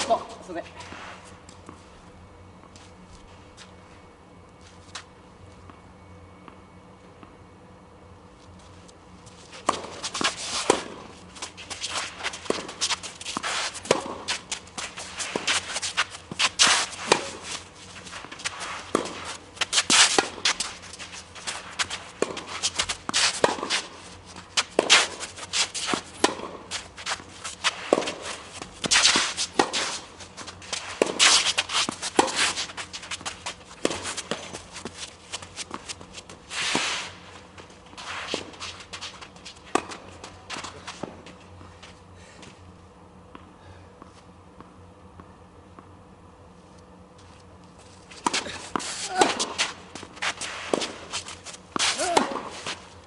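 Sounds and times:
footsteps scuffing on court: 2.6 - 4.0, 4.6 - 5.8, 8.4 - 42.7, 47.1 - 53.0
tennis ball hits: 16.3 - 17.4, 23.1 - 23.9, 25.9 - 26.6, 27.6 - 29.9, 51.8 - 52.8.

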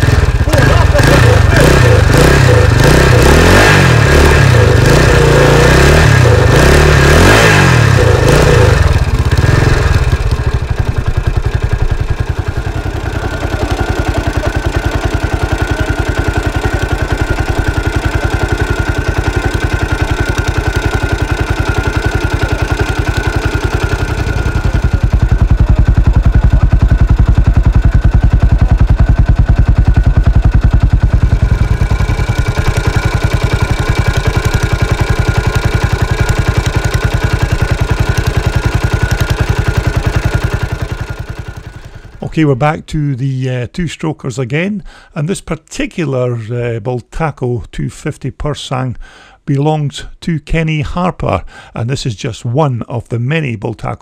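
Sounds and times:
dirt bike engine revving and idling: 0.0 - 42.9.

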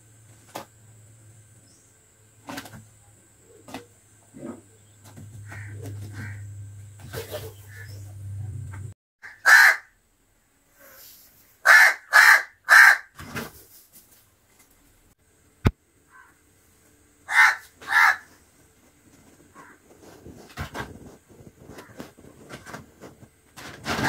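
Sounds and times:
crow cawing: 5.4 - 6.5, 9.2 - 10.0, 11.7 - 13.1, 16.1 - 16.4, 17.3 - 18.3, 19.6 - 19.8.

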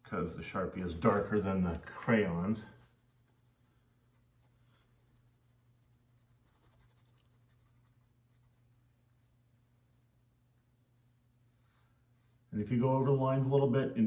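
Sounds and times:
low steady hum: 0.0 - 14.0
marker scratching on paper: 2.7 - 8.6.

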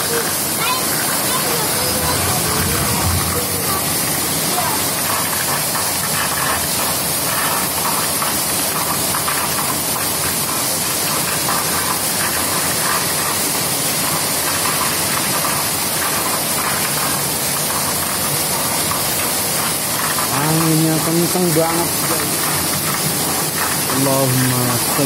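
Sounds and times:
torrential rain: 0.0 - 25.0
strong wind: 0.7 - 5.8.

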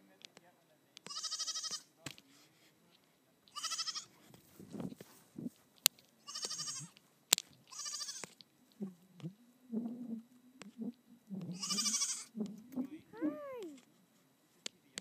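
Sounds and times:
goat kid bleating: 1.0 - 1.9, 3.5 - 4.2, 6.2 - 7.0, 7.7 - 8.4, 11.5 - 12.4
soft low sounds: 8.3 - 15.0.

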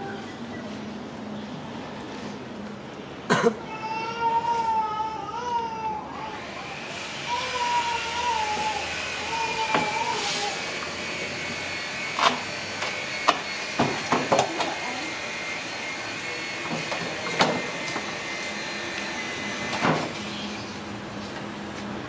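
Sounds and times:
baby monkey crying: 7.3 - 10.7.

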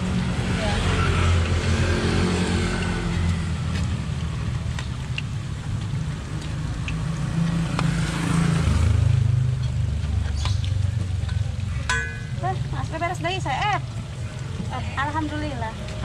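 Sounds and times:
vehicle engine humming: 0.0 - 16.0
oil sizzling in a wok: 8.9 - 16.0
metal spatula clinking on pan: 11.3 - 12.4.

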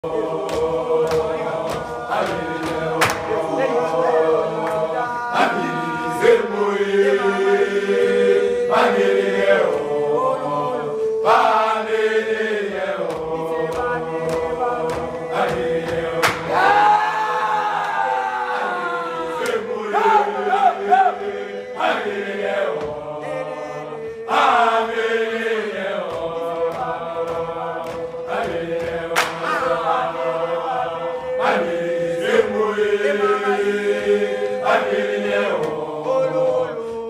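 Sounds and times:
boys singing in harmony: 0.0 - 37.0
sharp percussive hits: 13.0 - 16.7, 26.0 - 30.5.

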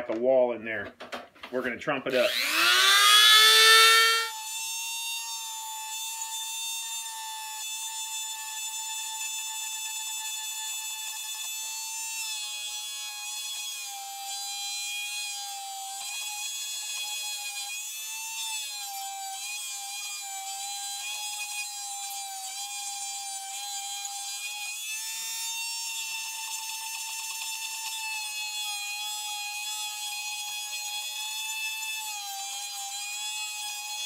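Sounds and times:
rotary tool whining: 2.1 - 14.5, 15.3 - 34.0.

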